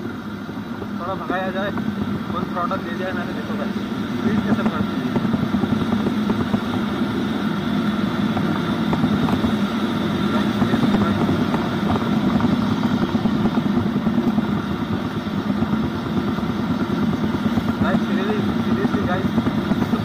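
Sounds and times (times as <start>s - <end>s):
wind rushing over microphone: 0.0s - 20.0s.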